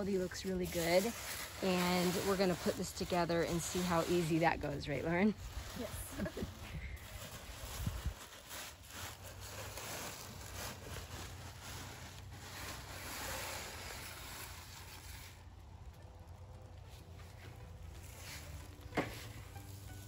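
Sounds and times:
plastic and cardboard rustling: 0:00.0 - 0:15.5, 0:16.6 - 0:20.0
wind rumble on microphone: 0:04.5 - 0:08.4.

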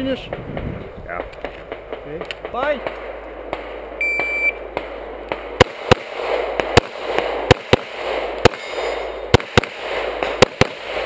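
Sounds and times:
pistol shots: 0:01.2 - 0:11.0
shot timer beep: 0:04.0 - 0:04.6.

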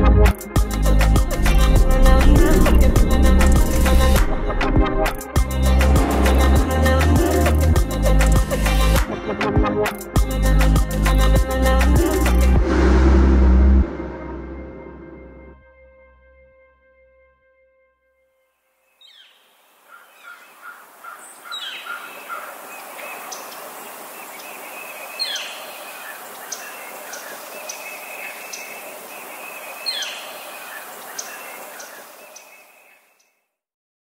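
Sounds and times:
birds chirping and calling: 0:19.0 - 0:33.1.

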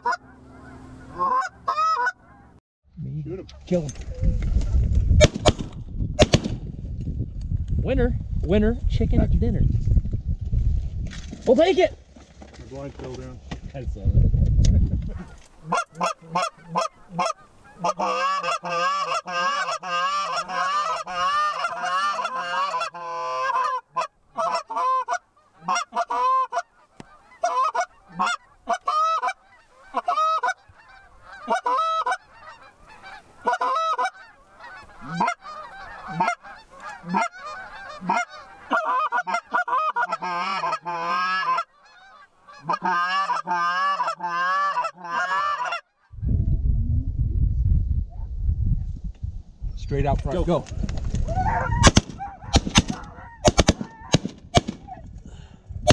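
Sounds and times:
geese honking and clucking: 0:00.0 - 0:02.6, 0:15.1 - 0:46.1, 0:51.2 - 0:55.0.

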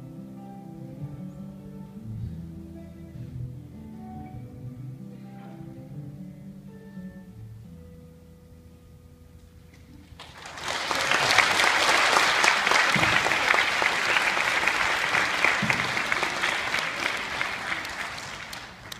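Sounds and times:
audience applauding: 0:10.1 - 0:18.9.

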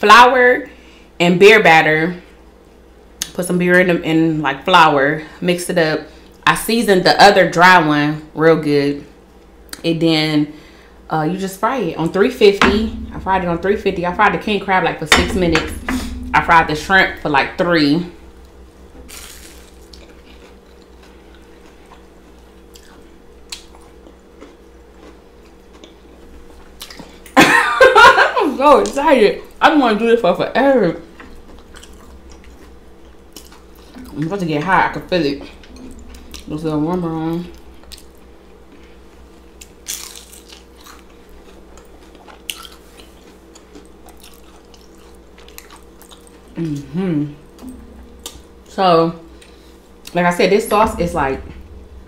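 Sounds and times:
faint steady hum: 0:00.0 - 0:52.0
batter crackling: 0:18.1 - 0:22.6
quiet chewing: 0:19.1 - 0:27.4, 0:37.6 - 0:46.9
crunch of fried batter: 0:39.7 - 0:46.2
crunching bites into fried food: 0:39.8 - 0:41.2.

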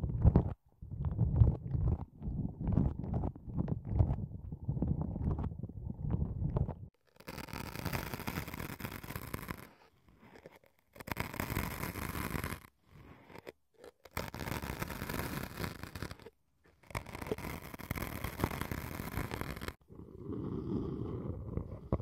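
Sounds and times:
sticks scratching foam: 0:07.1 - 0:19.8.

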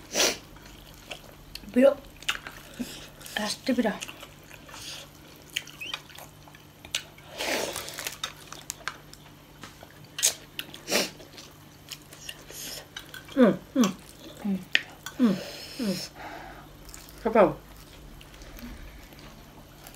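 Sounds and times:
mouth smacks and chewing: 0:04.0 - 0:07.2.

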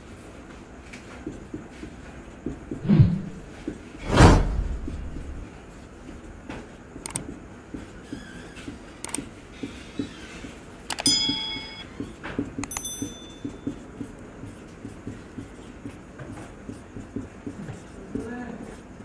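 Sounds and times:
marker writing on whiteboard: 0:01.2 - 0:02.8, 0:07.2 - 0:10.8, 0:11.4 - 0:19.0.

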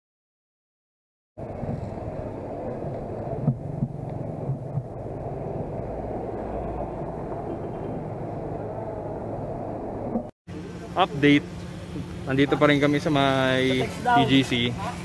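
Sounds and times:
wind rumble: 0:01.4 - 0:10.3
road vibration: 0:01.4 - 0:15.0.

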